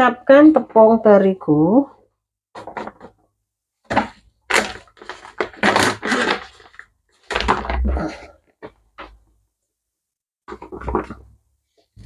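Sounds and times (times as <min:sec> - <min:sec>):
flour bag crinkling: 0:04.1 - 0:07.8.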